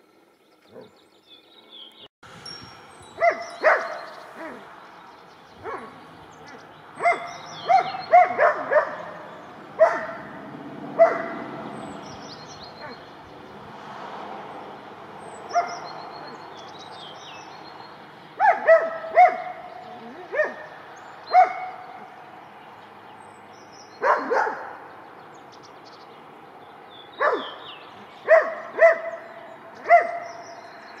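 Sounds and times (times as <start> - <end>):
dog barking: 3.2 - 4.7, 5.6 - 11.6, 15.5 - 16.4, 18.4 - 20.7, 21.3 - 22.0, 24.0 - 24.8, 27.2 - 27.6, 28.2 - 30.4.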